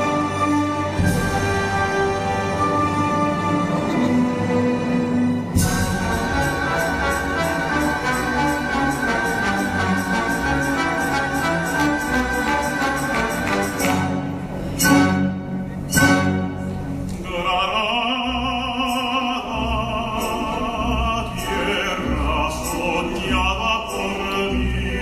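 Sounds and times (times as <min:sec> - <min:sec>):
operatic tenor singing: 0:00.0 - 0:14.2, 0:17.2 - 0:25.0
symphony orchestra playing: 0:00.0 - 0:25.0
loud percussion strikes: 0:05.5 - 0:16.6.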